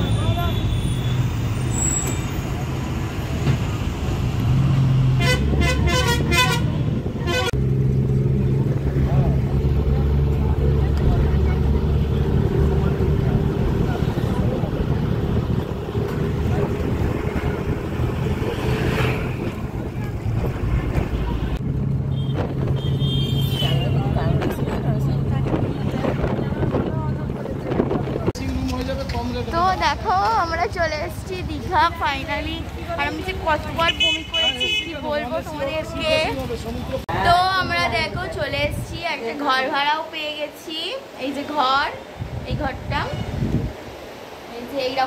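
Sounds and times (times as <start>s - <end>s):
bus engine and road noise: 0.0s - 45.0s
low engine hum: 3.6s - 23.1s
vehicle horn toots: 5.2s - 7.6s, 22.1s - 24.0s
wind buffeting microphone: 8.4s - 23.0s, 23.8s - 33.6s, 37.1s - 39.2s, 42.1s - 44.1s.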